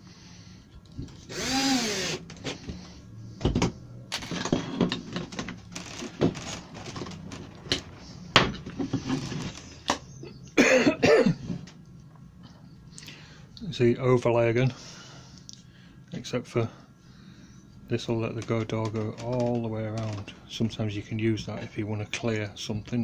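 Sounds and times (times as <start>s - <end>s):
drill driving a screw: 1.2s - 2.3s
clicks knocks and scrapes: 3.4s - 10.0s
person coughing: 10.6s - 11.5s.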